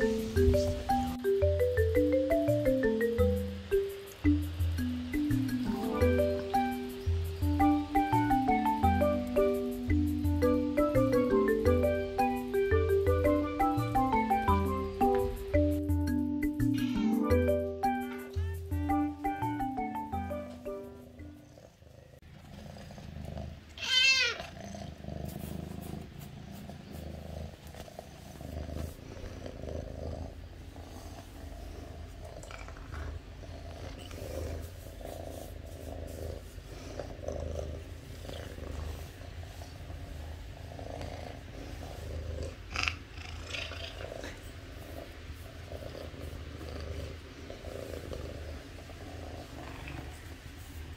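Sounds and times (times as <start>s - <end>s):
cat meowing: 18.0s - 19.1s, 23.8s - 24.6s
cat purring: 18.2s - 50.9s.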